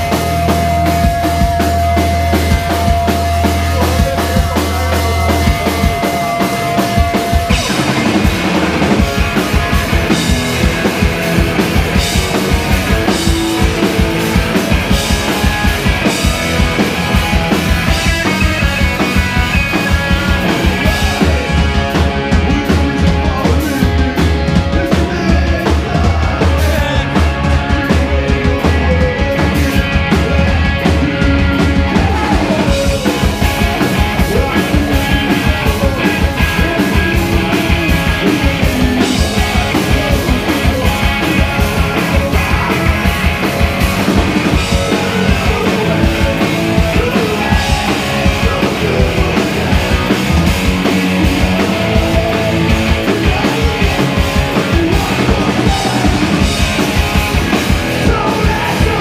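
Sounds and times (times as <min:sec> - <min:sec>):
distorted electric guitars: 0:00.0 - 0:59.0
fast drum-kit beat: 0:00.0 - 0:59.0.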